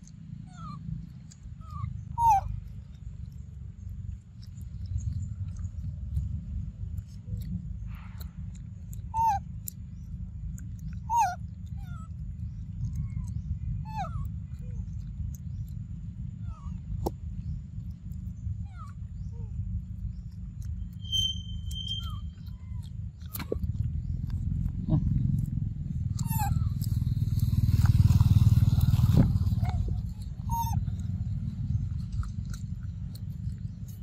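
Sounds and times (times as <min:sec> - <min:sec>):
low rumble: 0:00.0 - 0:34.0
steady whistle: 0:21.0 - 0:22.5.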